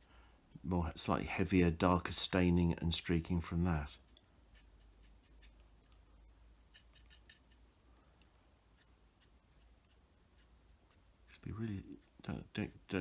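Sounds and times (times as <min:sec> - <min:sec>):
dry brush scratching plastic: 0:08.8 - 0:13.0.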